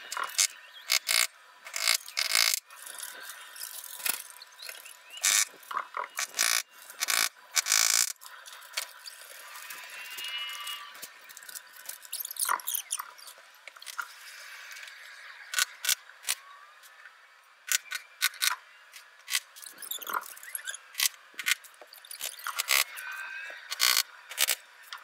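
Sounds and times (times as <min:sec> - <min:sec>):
high squeaky warbles: 0:19.6 - 0:20.9.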